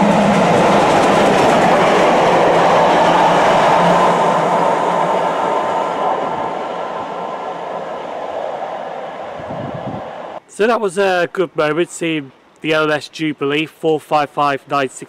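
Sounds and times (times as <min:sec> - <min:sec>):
wheels clattering on rail: 0:00.0 - 0:04.6
train rushing past: 0:00.0 - 0:10.5.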